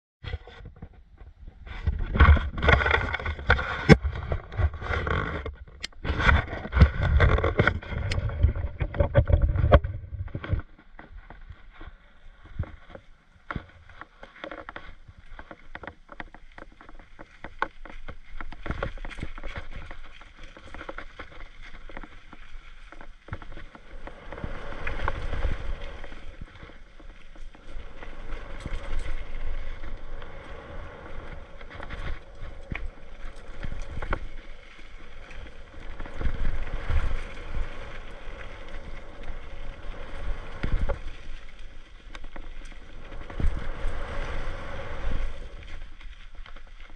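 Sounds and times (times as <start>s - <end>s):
wind rumble on microphone: 0.2s - 46.9s
bike tyres on dirt: 0.3s - 46.9s
bike knocking and rattling over bumps: 12.9s - 44.4s.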